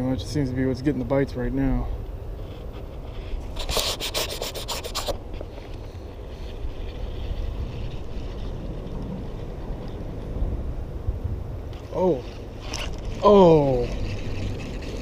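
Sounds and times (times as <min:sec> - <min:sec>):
rod and reel rubbing: 0:02.4 - 0:10.0, 0:11.8 - 0:15.0
steady low rumble: 0:05.1 - 0:15.0.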